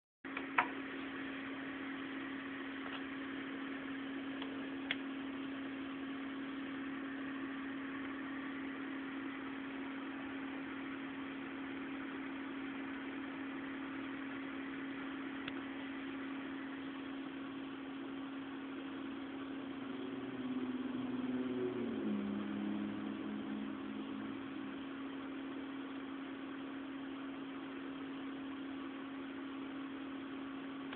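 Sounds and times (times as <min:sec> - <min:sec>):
low machine hum: 0:00.3 - 0:30.9
lower tones stepping down: 0:19.6 - 0:25.9.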